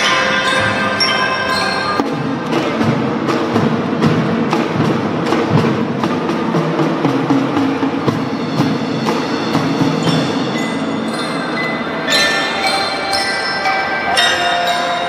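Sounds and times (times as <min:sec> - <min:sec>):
ringing mallet bell tones: 0:00.0 - 0:02.0, 0:10.0 - 0:15.0
sharp drum strokes: 0:00.0 - 0:12.7.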